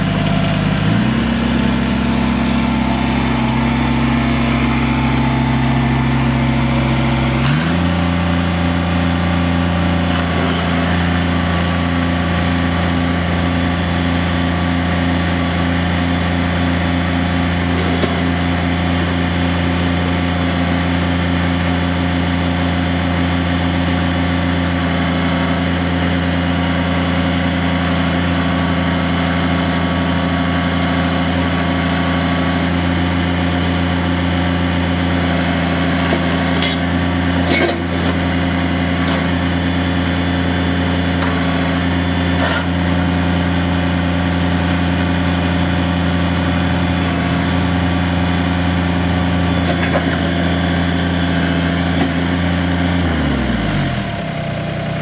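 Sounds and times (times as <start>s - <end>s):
diesel engine running: 0.0s - 55.0s
engine shutting off: 0.0s - 55.0s.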